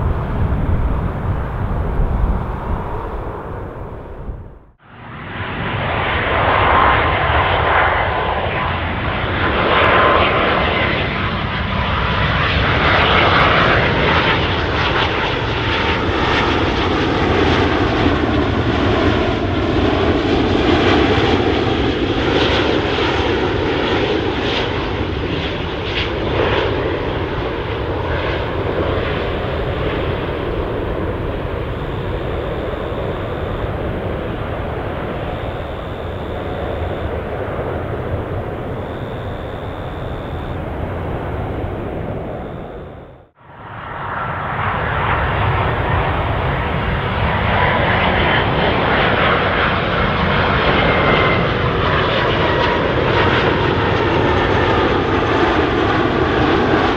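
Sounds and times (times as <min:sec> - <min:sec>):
jet engines rushing: 0:00.0 - 0:56.9
thin whine: 0:28.8 - 0:43.3.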